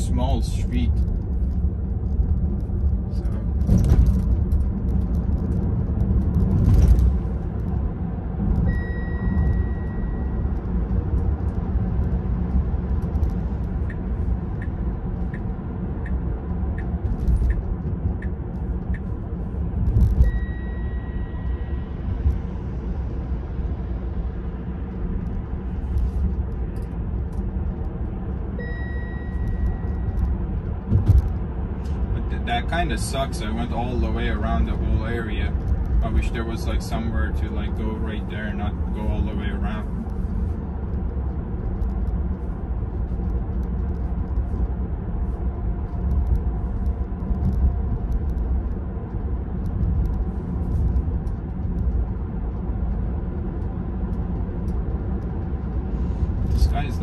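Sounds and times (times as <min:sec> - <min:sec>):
road and tyre rumble in car: 0:00.0 - 0:57.0
thuds from the road: 0:03.6 - 0:04.4, 0:30.8 - 0:31.4
soft evenly spaced ticks: 0:08.6 - 0:19.1, 0:32.5 - 0:56.8
held electronic beep: 0:08.7 - 0:10.5, 0:20.2 - 0:21.8, 0:28.6 - 0:30.2.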